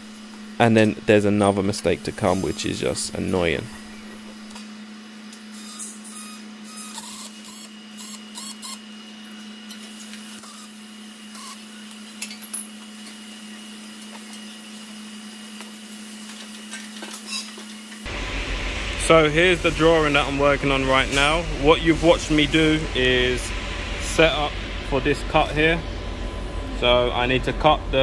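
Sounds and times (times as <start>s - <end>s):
steady low hum: 0.0s - 5.4s, 18.0s - 28.0s.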